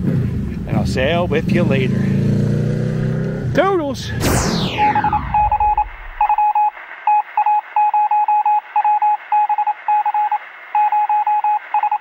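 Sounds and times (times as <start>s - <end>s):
radio static hiss: 4.0s - 7.8s
morse code beeps: 4.7s - 12.0s.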